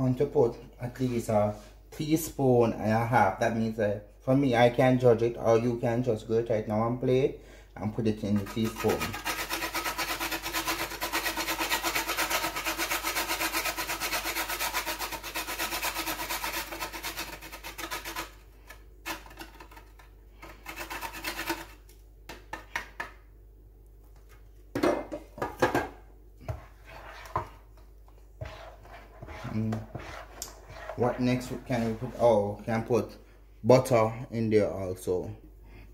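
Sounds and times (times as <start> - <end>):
nutmeg rasping on metal grater: 8.3 - 18.4, 20.4 - 21.8.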